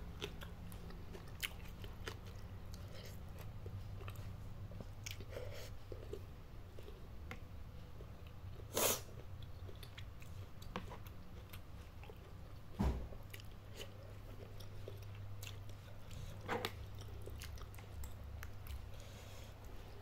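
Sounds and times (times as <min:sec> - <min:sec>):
close chewing of noodles: 0:00.0 - 0:07.1, 0:13.3 - 0:20.0
low steady hum: 0:00.0 - 0:20.0.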